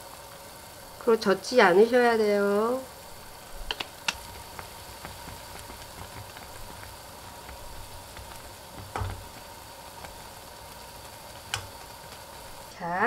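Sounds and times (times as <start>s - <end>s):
soup boiling and bubbling: 0.0s - 13.0s
knock: 8.8s - 9.2s.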